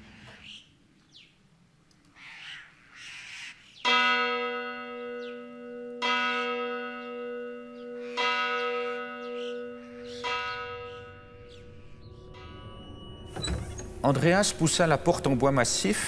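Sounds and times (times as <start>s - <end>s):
church bell tolling: 3.9s - 16.0s.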